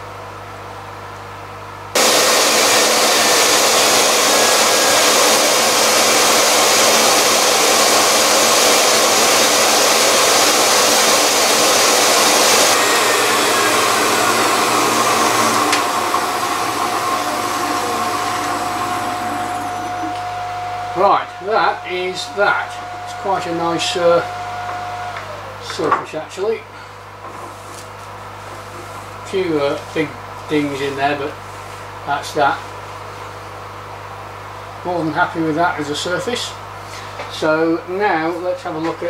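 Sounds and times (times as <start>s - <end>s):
steady tone: 2.0s - 24.2s
grinder high-speed whine: 2.0s - 25.7s.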